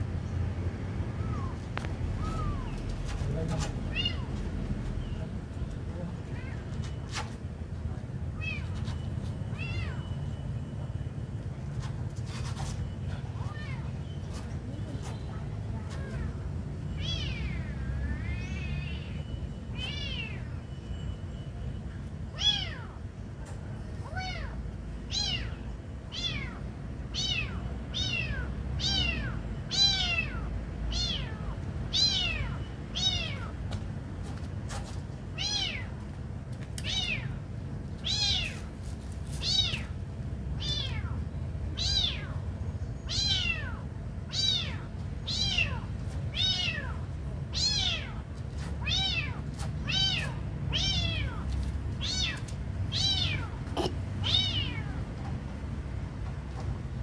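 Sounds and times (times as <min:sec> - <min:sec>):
kitten mewing: 0:48.8 - 0:55.0.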